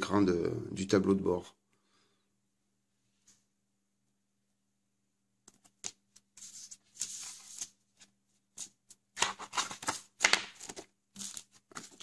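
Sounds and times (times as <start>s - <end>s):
paper sheets rustling: 5.5s - 12.0s.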